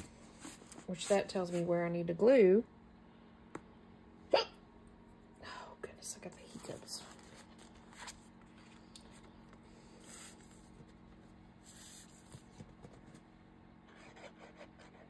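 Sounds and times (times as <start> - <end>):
paper rubbing and scraping: 13.9 - 15.0.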